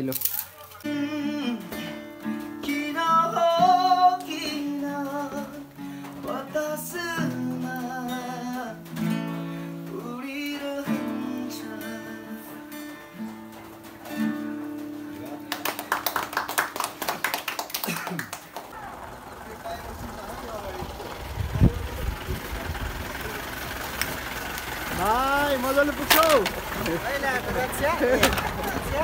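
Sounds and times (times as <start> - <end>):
acoustic guitar music: 0.0 - 17.7, 18.3 - 29.0
person singing: 0.8 - 8.9, 9.8 - 12.8.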